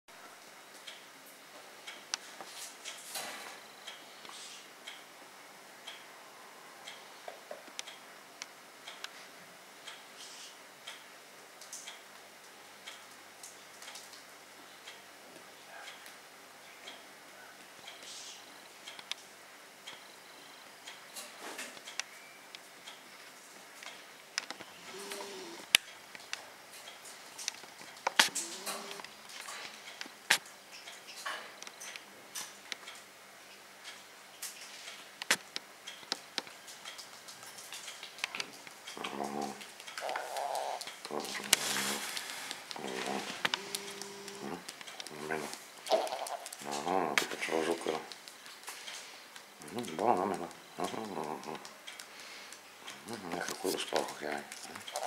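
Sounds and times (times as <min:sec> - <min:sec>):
light irregular clicks: 0:06.8 - 0:09.2, 0:09.8 - 0:17.1, 0:17.7 - 0:55.0
clock ticking: 0:23.8 - 0:31.0, 0:34.9 - 0:55.0
soft rustle: 0:36.6 - 0:49.9.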